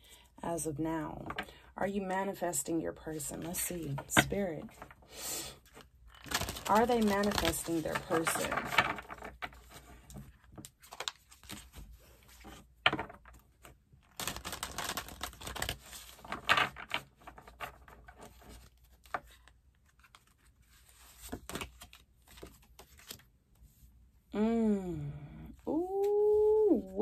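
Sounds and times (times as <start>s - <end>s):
cards being shuffled: 5.6s - 23.3s.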